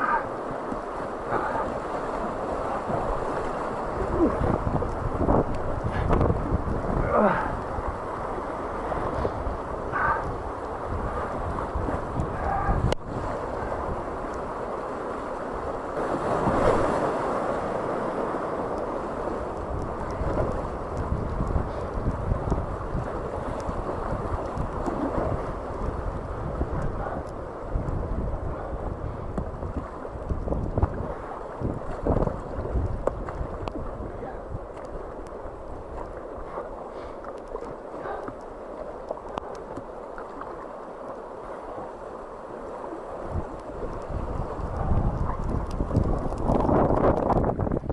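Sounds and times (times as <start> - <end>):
rushing whitewater: 0.0 - 47.9
wind buffeting microphone: 0.9 - 36.6, 43.1 - 47.9
light ticks: 19.5 - 25.0, 32.8 - 33.8, 37.2 - 41.2, 43.5 - 47.4.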